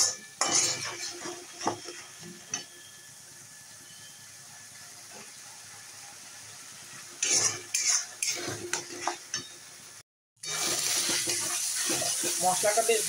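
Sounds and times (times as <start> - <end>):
metal spatula scraping pan: 0.0 - 2.9, 7.2 - 9.5, 10.4 - 12.6
paste sizzling in oil: 0.0 - 13.0.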